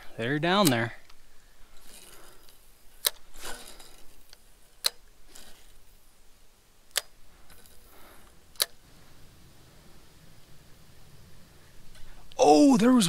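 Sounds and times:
faint rustling: 0:00.8 - 0:06.4.

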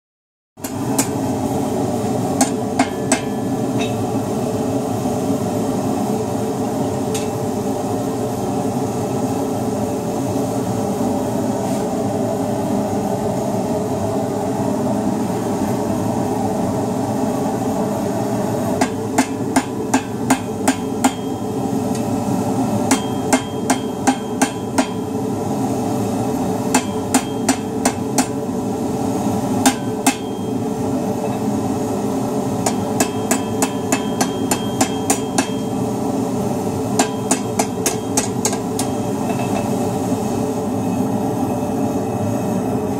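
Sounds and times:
hammer striking steel on anvil: 0:00.6 - 0:01.2, 0:02.4 - 0:04.1, 0:07.1 - 0:07.4, 0:18.8 - 0:22.1, 0:22.9 - 0:25.2, 0:26.7 - 0:28.4, 0:29.6 - 0:30.6, 0:32.6 - 0:35.8, 0:37.0 - 0:39.7
gas forge burner rushing: 0:00.6 - 0:42.9.

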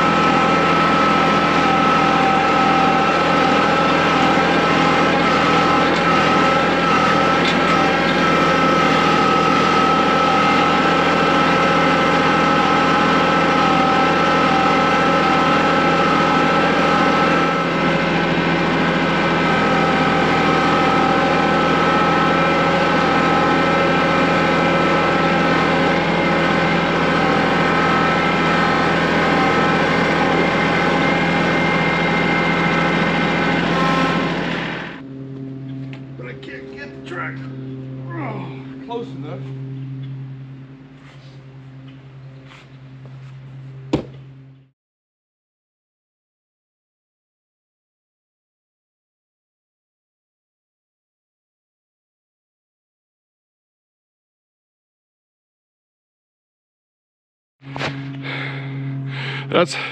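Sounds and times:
tractor engine running: 0:00.0 - 0:44.7, 0:57.6 - 0:59.9.

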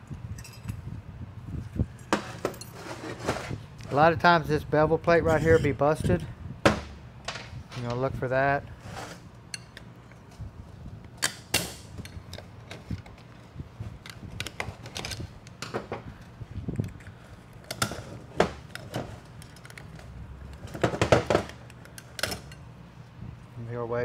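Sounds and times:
metal parts clinking and scraping: 0:00.4 - 0:00.8, 0:02.0 - 0:03.6, 0:17.6 - 0:22.6.

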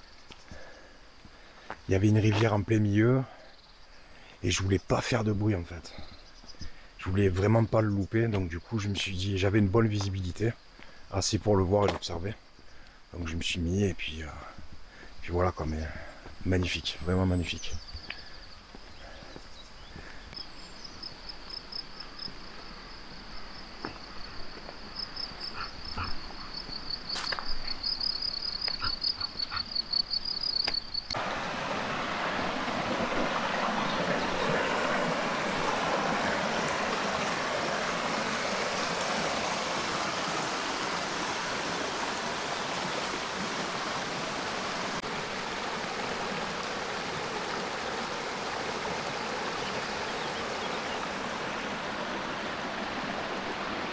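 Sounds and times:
high pulsing insect trill: 0:17.6 - 0:31.2
mountain stream rushing: 0:31.1 - 0:53.9.

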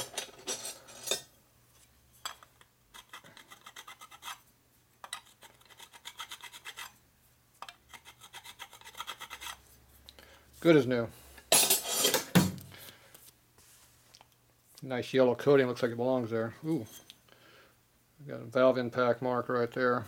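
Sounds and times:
hand file rasping on metal: 0:03.0 - 0:04.4, 0:05.2 - 0:07.0, 0:07.9 - 0:09.6.

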